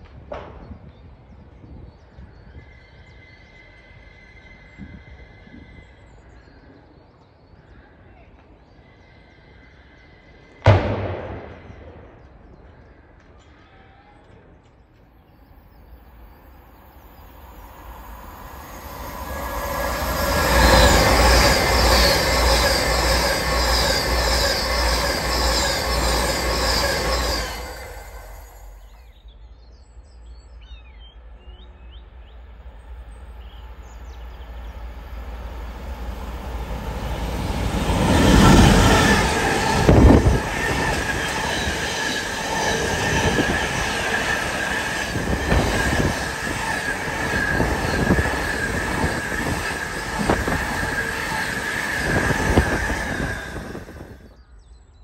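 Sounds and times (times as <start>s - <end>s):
passenger train passing at speed: 14.9s - 55.0s
freight train approaching: 15.4s - 54.6s.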